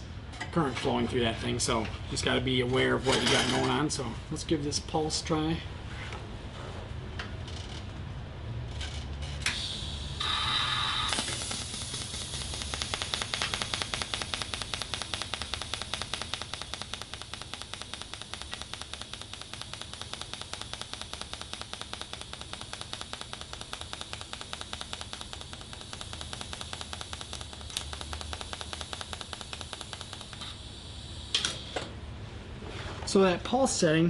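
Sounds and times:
pulsing welding arc hiss: 9.5s - 31.9s.

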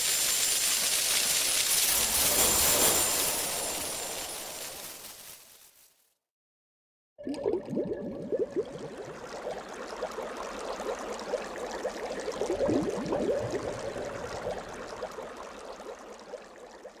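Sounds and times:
water bubbling and gurgling: 7.2s - 17.0s.

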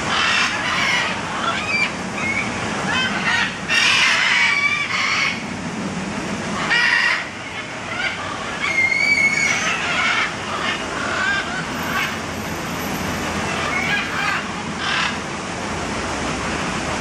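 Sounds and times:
parrots squawking: 0.0s - 5.4s, 6.6s - 12.2s, 13.4s - 15.2s.

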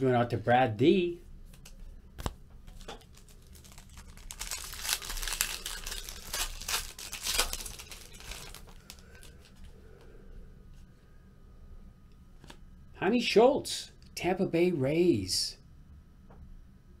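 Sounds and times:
foil wrapper tearing and crinkling: 2.7s - 9.6s.

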